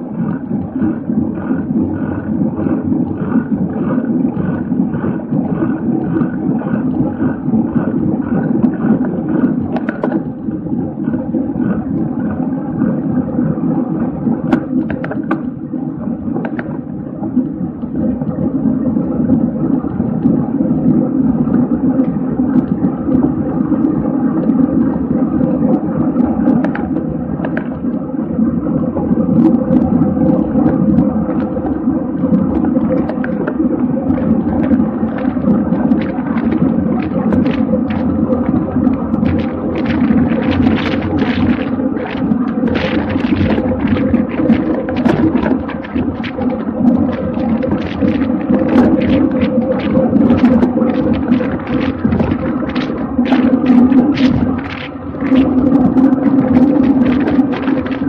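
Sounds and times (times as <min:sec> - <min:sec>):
wind buffeting microphone: 0:29.3 - 0:58.0.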